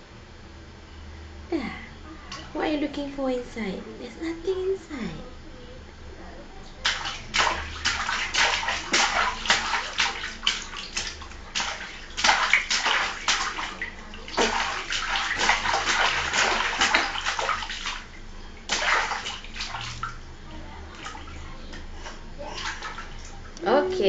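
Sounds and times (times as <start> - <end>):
baby splashing water in tub: 6.8 - 23.6.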